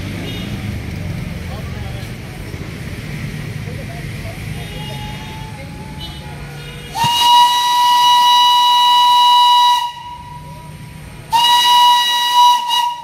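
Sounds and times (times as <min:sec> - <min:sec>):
steam locomotive whistle: 0:06.9 - 0:10.7, 0:11.3 - 0:13.0.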